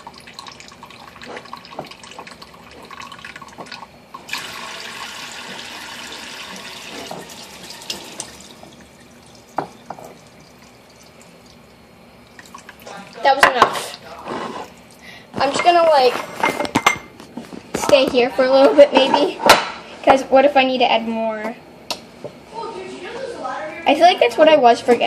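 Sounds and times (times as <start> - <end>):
tap water splashing into sink: 3.3 - 10.3
water drips: 7.6 - 13.2.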